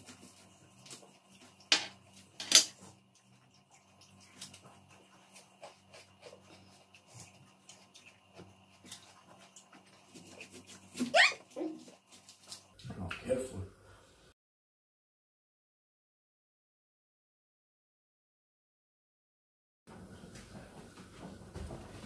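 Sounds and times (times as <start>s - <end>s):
wet chewing: 0.0s - 12.8s.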